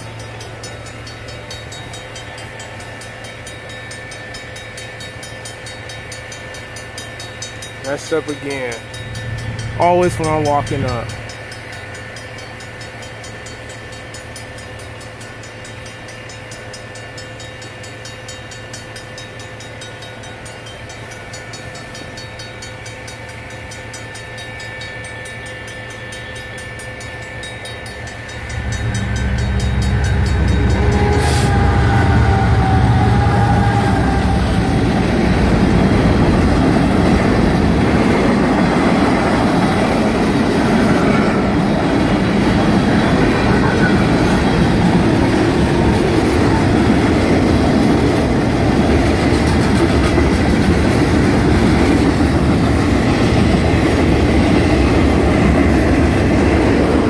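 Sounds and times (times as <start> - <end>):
mechanical crossing bell ringing: 0.0 - 31.1
electronic crossing bell ringing: 0.0 - 32.6
locomotive low rumble: 20.0 - 57.0
freight cars rolling: 26.2 - 57.0.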